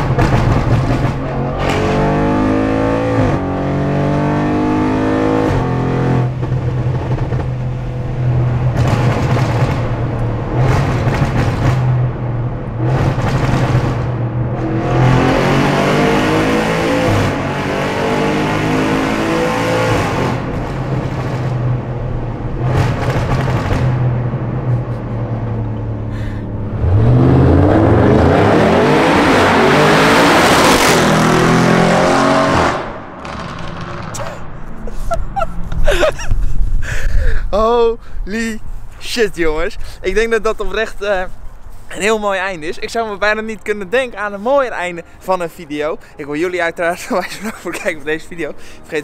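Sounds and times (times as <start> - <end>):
car engine accelerating hard: 0.0 - 34.3.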